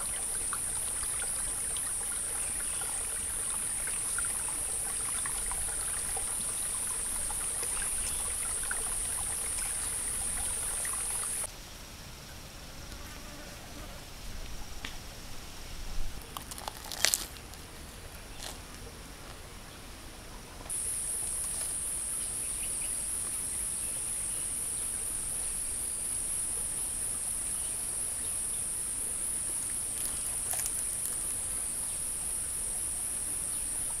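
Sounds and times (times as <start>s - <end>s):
insects droning: 0.0s - 11.5s, 20.7s - 34.0s.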